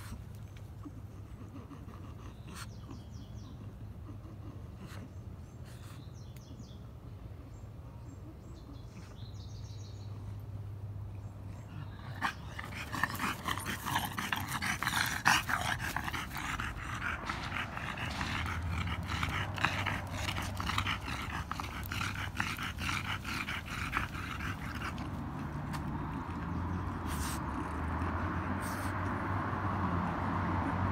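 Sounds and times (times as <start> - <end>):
dog sniffing and breathing: 0.0 - 6.4, 11.6 - 29.3.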